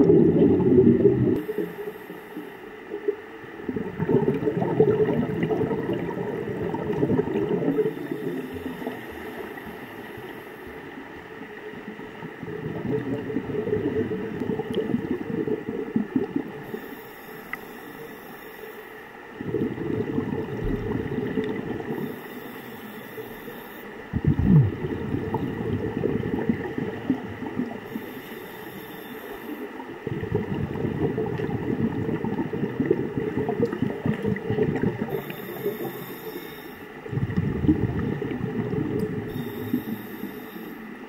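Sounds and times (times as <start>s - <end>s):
muffled underwater gurgling rushes: 0.0s - 1.8s, 3.6s - 10.4s, 12.1s - 16.8s, 19.4s - 22.3s, 24.0s - 28.2s, 29.9s - 36.1s, 37.0s - 40.0s.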